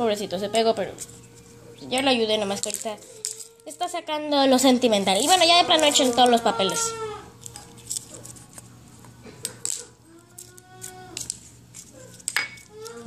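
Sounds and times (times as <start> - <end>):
young child crying: 5.4 - 7.3, 10.1 - 11.3, 12.6 - 13.0.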